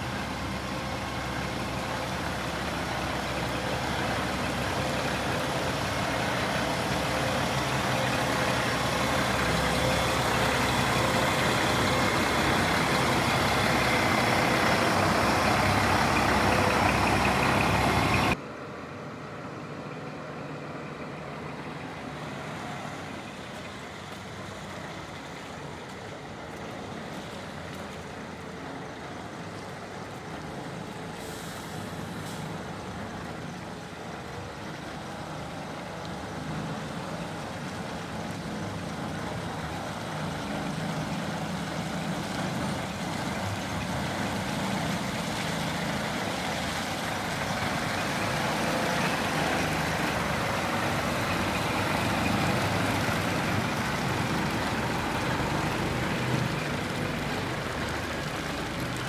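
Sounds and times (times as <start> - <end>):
diesel truck engine running: 0.0 - 59.0
distant truck engine: 0.0 - 59.0
brief hiss: 31.1 - 32.6.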